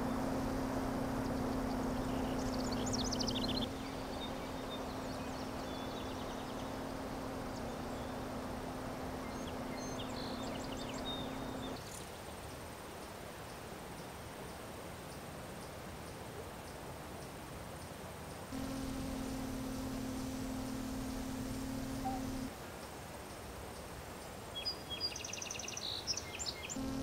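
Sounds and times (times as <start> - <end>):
low hum: 0.0 - 11.8, 18.5 - 22.5, 26.8 - 27.0
birds chirping in high trills: 1.1 - 11.8
steady hiss: 16.8 - 24.6.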